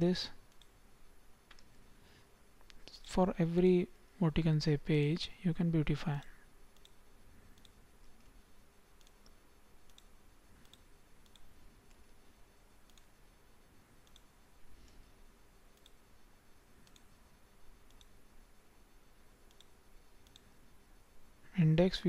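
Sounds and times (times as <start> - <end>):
low room hiss: 0.0 - 22.0
computer mouse clicks: 0.5 - 0.8, 6.2 - 8.4, 9.0 - 12.1, 12.8 - 13.1, 14.0 - 15.0, 15.7 - 16.0, 16.8 - 17.2, 17.8 - 18.2, 19.4 - 20.5.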